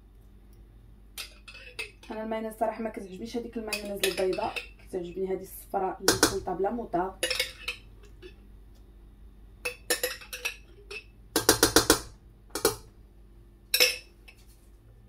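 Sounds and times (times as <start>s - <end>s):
spoon knocking on metal pot: 6.1s - 6.5s, 11.4s - 12.9s.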